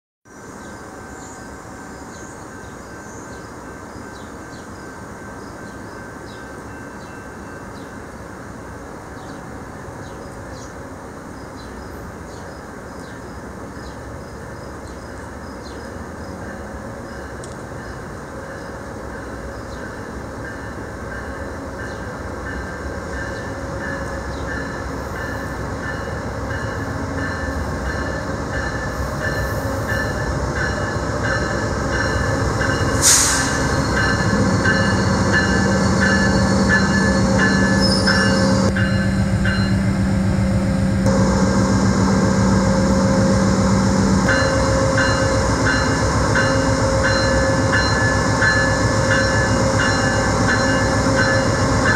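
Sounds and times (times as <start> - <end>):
diesel locomotive hauling train: 0.3 - 51.9
locomotive bell ringing: 16.4 - 51.9
steady low tone: 33.7 - 51.4.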